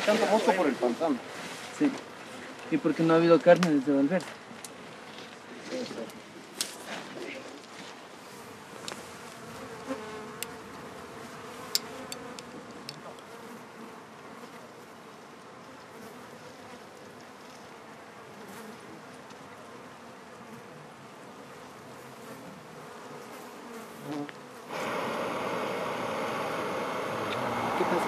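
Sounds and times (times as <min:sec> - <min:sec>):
flies buzzing: 0:08.1 - 0:28.0.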